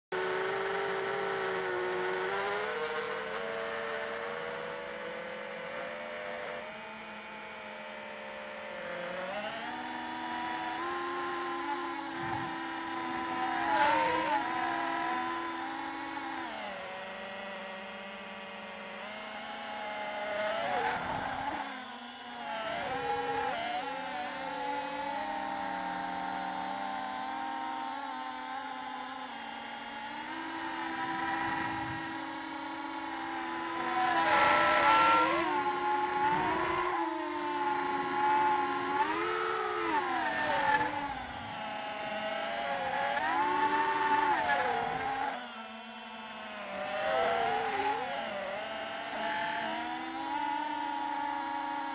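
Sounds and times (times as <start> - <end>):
electric motor and propeller whine: 0.1 - 51.9.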